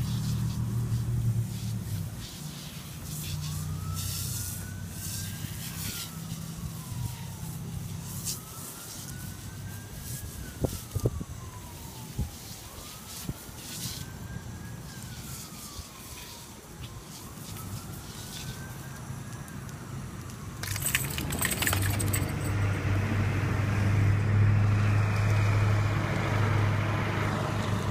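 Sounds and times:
vehicle engine hum: 0:00.0 - 0:04.8, 0:20.0 - 0:27.9
faint siren wailing: 0:00.0 - 0:27.9
brief jangle: 0:20.6 - 0:22.9.

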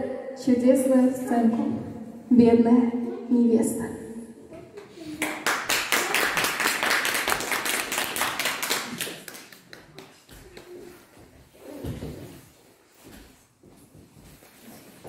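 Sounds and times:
small audience clapping: 0:05.1 - 0:11.2.

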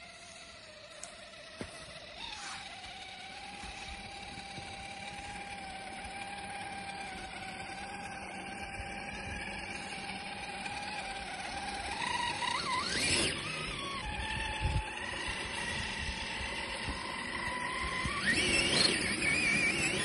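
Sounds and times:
toy car electric motor whining: 0:00.0 - 0:20.0.

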